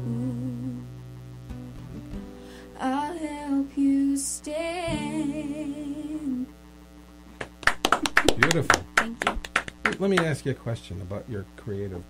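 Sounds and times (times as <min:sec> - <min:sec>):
woman humming: 0:00.0 - 0:01.0, 0:02.8 - 0:06.6
acoustic guitar: 0:00.0 - 0:06.5
hand claps: 0:07.4 - 0:10.4.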